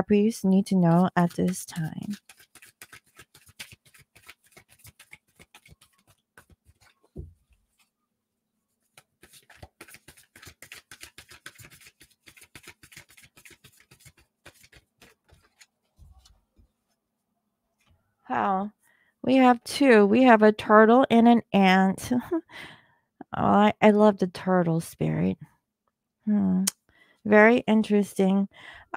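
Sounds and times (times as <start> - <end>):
cards being shuffled: 0.9 - 7.2, 8.9 - 16.4.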